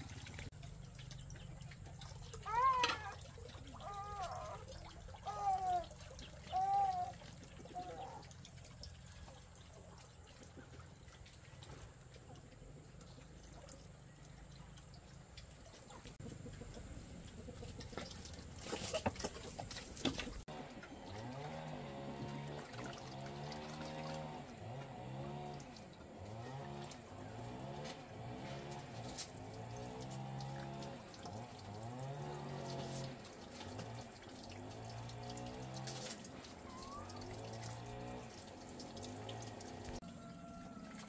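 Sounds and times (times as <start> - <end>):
water trickling: 0.0 - 41.0.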